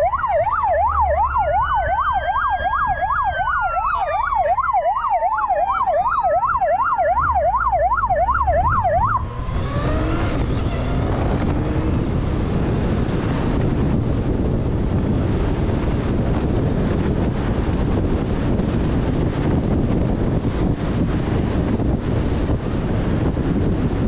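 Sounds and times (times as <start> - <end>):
police motorcycle siren warbling: 0.0 - 12.0
wind rushing over microphone: 0.0 - 24.0.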